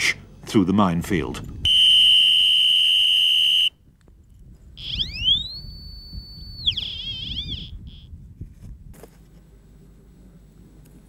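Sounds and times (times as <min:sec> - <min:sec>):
whistle blast: 0:01.6 - 0:03.8, 0:04.8 - 0:08.1
mine detector electronic tone: 0:01.7 - 0:03.7, 0:04.8 - 0:09.2.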